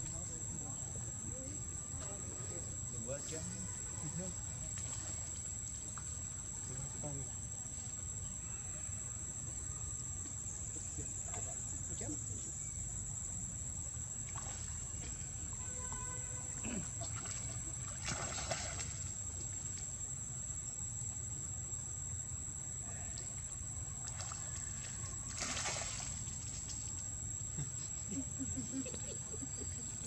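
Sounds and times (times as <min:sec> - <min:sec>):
water sloshing: 0:14.2 - 0:19.8, 0:24.0 - 0:26.9
loud water splashes: 0:17.0 - 0:19.1, 0:25.3 - 0:26.2.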